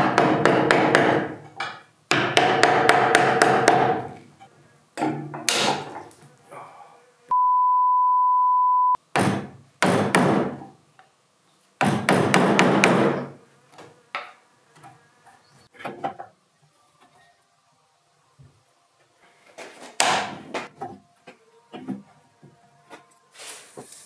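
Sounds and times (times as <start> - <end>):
high-pitched beep: 7.3 - 9.0.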